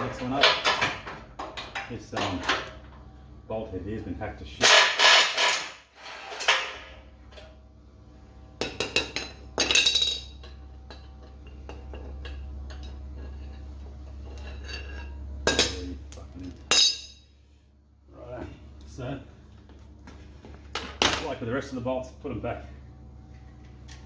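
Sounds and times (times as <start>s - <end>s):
low steady hum: 0.0s - 24.0s
wrench clinking against metal: 16.7s - 17.2s.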